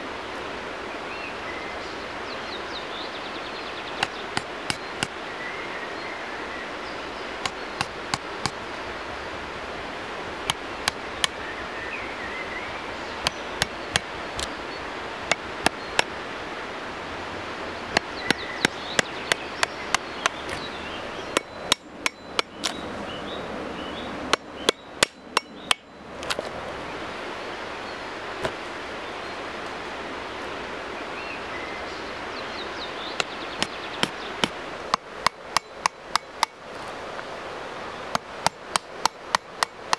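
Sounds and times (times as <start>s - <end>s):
knife tapping into wood: 7.4s - 8.6s, 21.4s - 22.8s, 24.3s - 26.4s.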